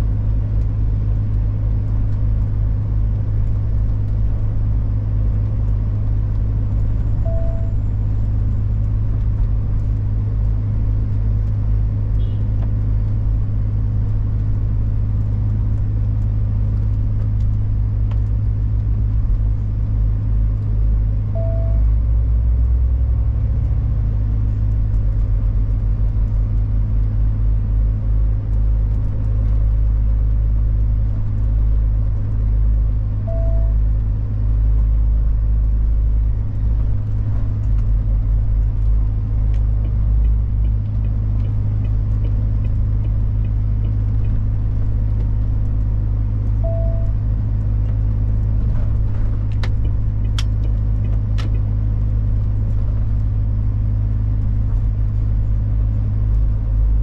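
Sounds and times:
truck diesel engine drone: 0:00.0 - 0:57.0
short beep: 0:07.2 - 0:07.9, 0:21.4 - 0:21.8, 0:33.3 - 0:33.8, 0:46.6 - 0:47.1.

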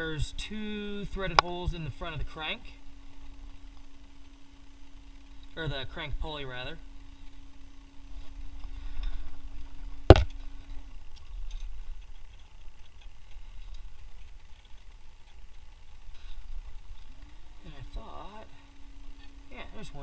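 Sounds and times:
steady low hum: 0:00.0 - 0:20.0
light handling ticks: 0:07.0 - 0:19.6
sharp knock: 0:10.1 - 0:10.3.

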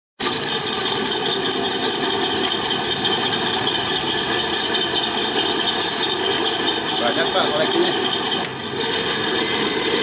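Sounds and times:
recorded tank engine idling: 0:00.2 - 0:10.0.

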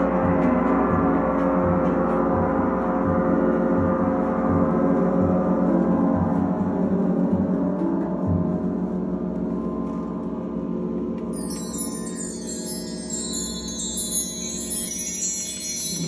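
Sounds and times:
gongs ringing: 0:11.4 - 0:16.0.

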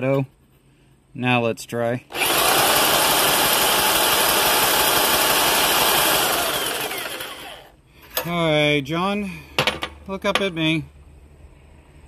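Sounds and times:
drill spinning engine over: 0:02.1 - 0:07.8.

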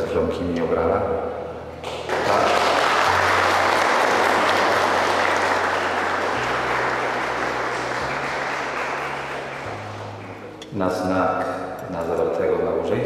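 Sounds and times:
crowd applauding: 0:01.8 - 0:10.6.

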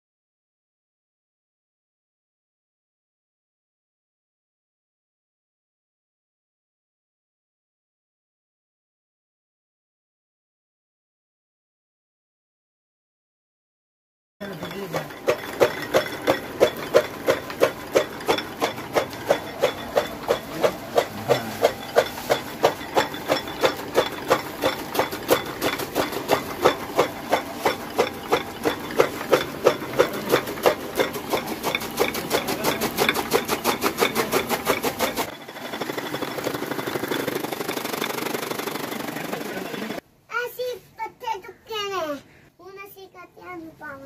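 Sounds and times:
chaff cutter chopping: 0:14.4 - 0:40.0
steady machine whir: 0:14.4 - 0:40.0.

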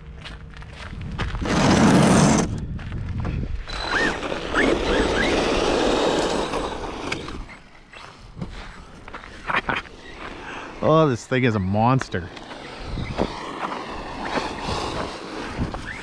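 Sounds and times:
tyre noise: 0:00.8 - 0:16.0
electric motor whining and revving: 0:01.3 - 0:02.7, 0:03.6 - 0:16.0.

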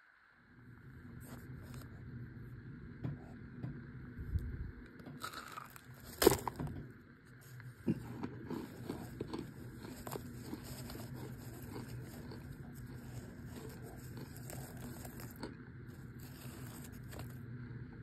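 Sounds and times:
cornstarch crunching and cracking: 0:05.2 - 0:06.7, 0:07.4 - 0:17.5.

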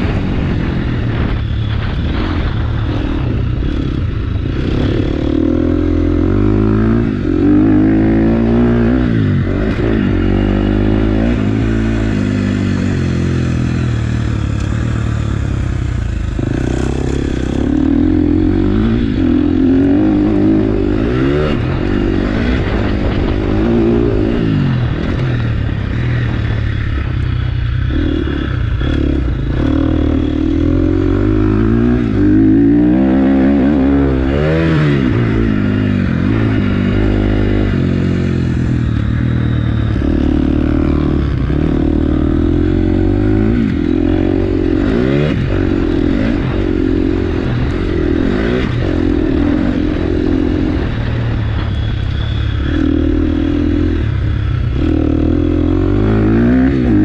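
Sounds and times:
motorbike engine revving: 0:00.0 - 0:57.0.

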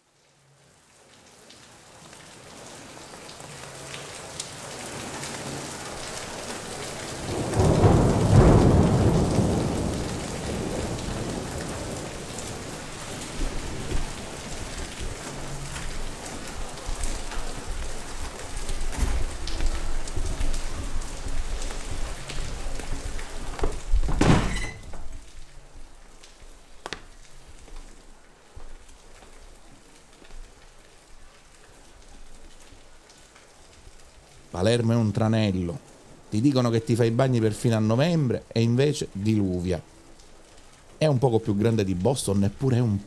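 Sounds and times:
rain falling: 0:00.0 - 0:43.0
thunder rolling: 0:07.2 - 0:15.3.

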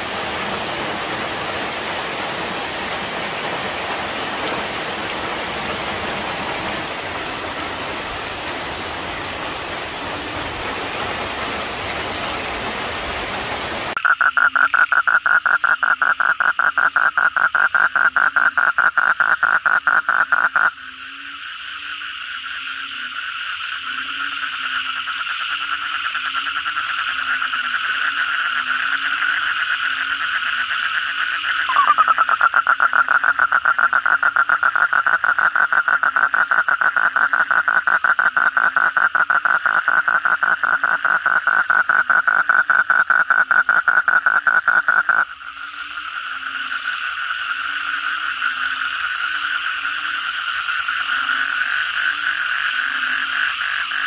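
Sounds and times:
loud nearby toad trill: 0:14.0 - 0:23.2, 0:23.8 - 0:54.0
toads chorus trilling: 0:14.0 - 0:54.0
toad rattling trill: 0:31.7 - 0:45.2.

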